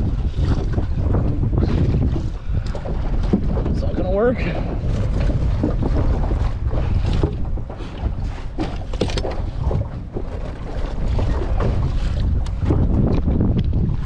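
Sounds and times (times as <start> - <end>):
water slapping against boat: 0.0 - 14.0
wind buffeting microphone: 0.0 - 14.0.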